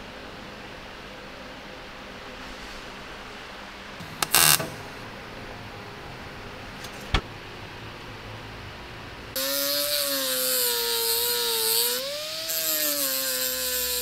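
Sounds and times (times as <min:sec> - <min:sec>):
angle grinder grinding steel: 0:09.4 - 0:14.0.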